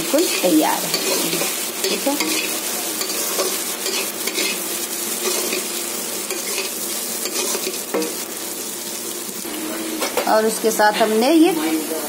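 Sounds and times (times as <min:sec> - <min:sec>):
spatula scraping pan: 0:00.0 - 0:08.2
vegetables sizzling in oil: 0:00.0 - 0:12.0.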